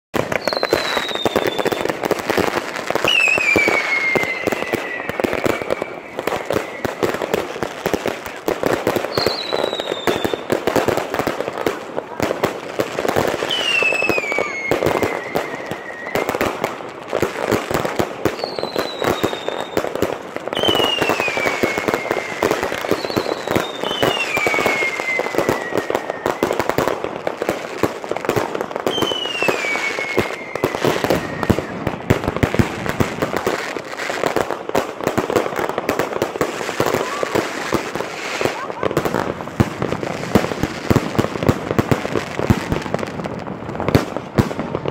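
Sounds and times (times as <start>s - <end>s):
fireworks crackling and banging: 0.1s - 44.9s
falling firework whistles: 0.2s - 8.0s, 8.7s - 10.8s, 13.2s - 34.5s.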